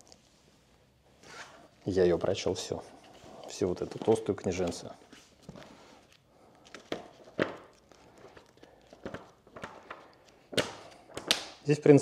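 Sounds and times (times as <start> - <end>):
book pages rustling: 2.7 - 11.5.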